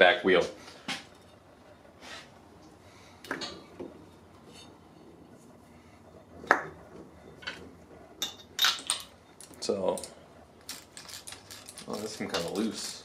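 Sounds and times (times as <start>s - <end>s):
hand tools clinking on metal: 10.7s - 13.0s.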